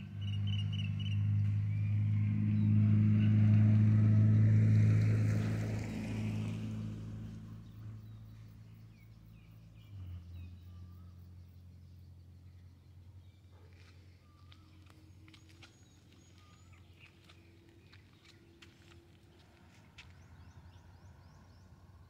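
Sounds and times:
vehicle engine passing by: 0.0s - 22.0s
faint bird chirps: 7.6s - 19.0s.

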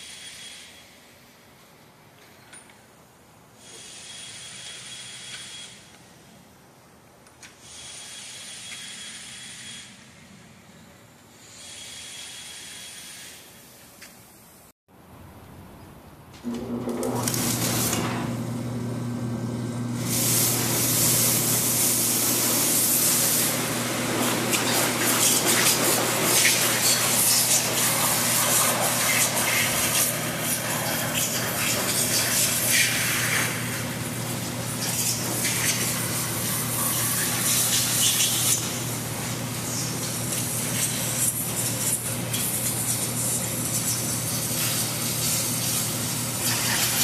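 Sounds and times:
hissing spray: 3.6s - 5.9s, 7.6s - 10.2s, 11.4s - 14.0s, 19.9s - 47.0s.

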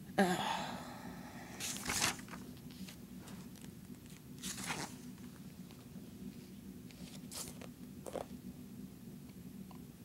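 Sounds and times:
magazine pages rustling: 1.6s - 5.3s, 7.0s - 8.3s.

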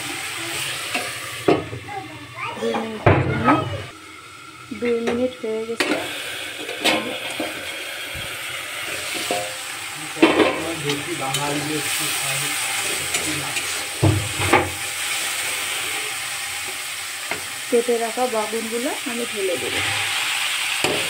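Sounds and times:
shrimp sizzling in a pan: 0.0s - 3.0s, 3.9s - 21.0s
metal spatula scraping pan: 8.8s - 9.6s, 19.6s - 21.0s.

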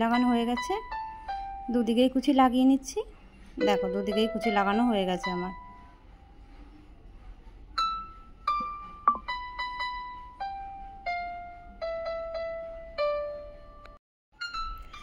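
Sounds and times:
slow piano melody: 0.0s - 2.3s, 3.6s - 6.0s, 7.8s - 15.0s.

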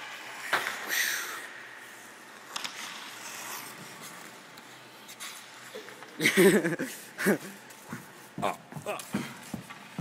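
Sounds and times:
skate scraping on ice: 1.8s - 5.8s.

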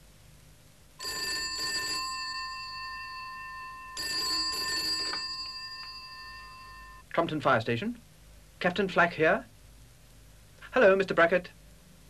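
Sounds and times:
telephone bell ringing: 1.0s - 7.0s.

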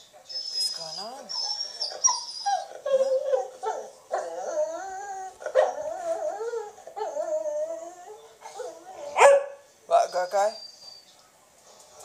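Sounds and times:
dog whining and howling: 0.4s - 11.0s.

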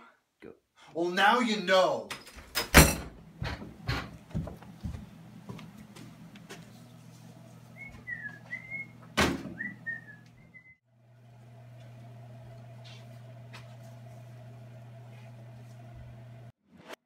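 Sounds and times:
knocks and thumps: 2.7s - 4.6s
person whistling a tune: 7.8s - 8.9s, 9.6s - 10.8s.

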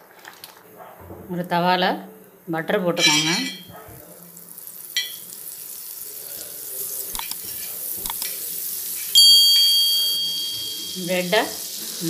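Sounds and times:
butter sizzling in a pan: 4.0s - 12.0s
spoon clicking on a pan: 5.0s - 5.2s, 9.0s - 11.0s
ringing chime: 9.2s - 11.4s.

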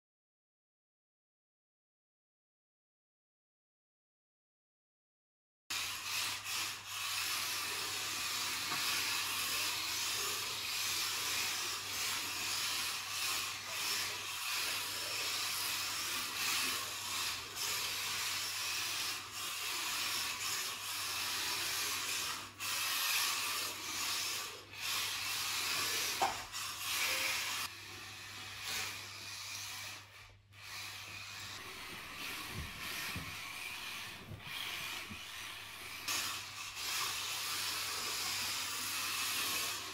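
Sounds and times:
toy car electric motors whirring: 5.7s - 39.9s
tyres scrubbing on mat: 30.7s - 36.3s.

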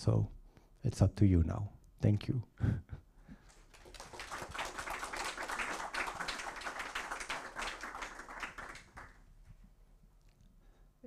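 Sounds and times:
audience applause: 3.5s - 9.3s.

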